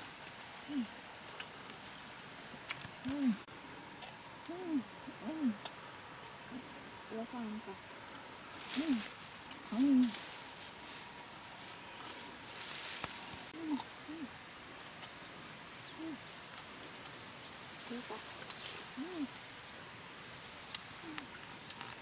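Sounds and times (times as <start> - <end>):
leaves rustling in undergrowth: 0.0 - 3.5, 8.2 - 13.6, 14.7 - 22.0
short low calls: 3.0 - 3.5, 8.6 - 10.3, 13.4 - 14.4, 15.8 - 16.3, 17.8 - 19.4.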